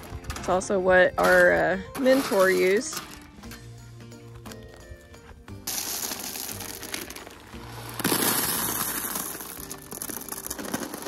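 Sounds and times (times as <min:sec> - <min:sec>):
gravel raked and poured: 0:00.0 - 0:03.3, 0:05.6 - 0:11.0
background music: 0:00.0 - 0:11.0.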